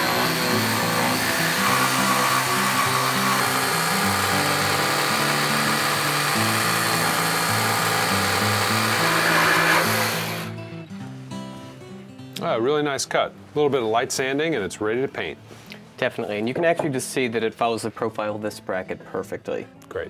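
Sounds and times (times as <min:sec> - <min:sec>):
jigsaw cutting wood: 0:00.0 - 0:10.5
background music with plucked bass: 0:00.0 - 0:20.0.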